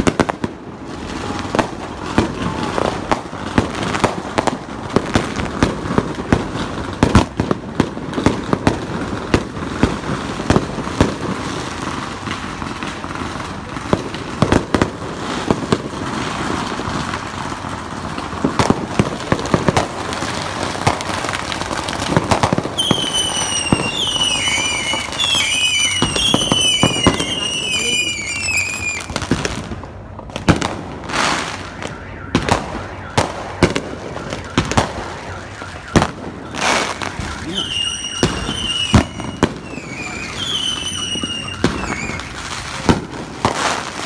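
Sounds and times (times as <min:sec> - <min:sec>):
fireworks bangs: 0:00.0 - 0:44.0
fireworks crackle: 0:00.0 - 0:44.0
whistling rocket: 0:22.8 - 0:29.2, 0:31.3 - 0:42.4.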